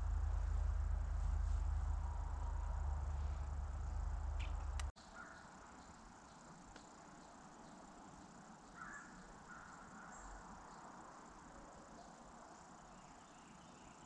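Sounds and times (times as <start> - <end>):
high insect hum: 0.0 - 14.0
faint chirps: 1.4 - 14.0.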